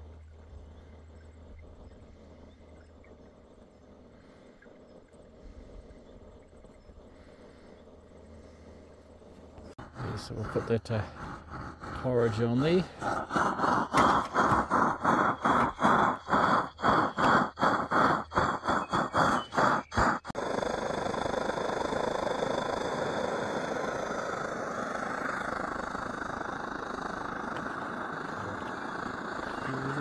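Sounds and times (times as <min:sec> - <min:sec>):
fast rhythmic pulsing: 0:00.0 - 0:30.0
camp stove burner hissing: 0:03.2 - 0:30.0.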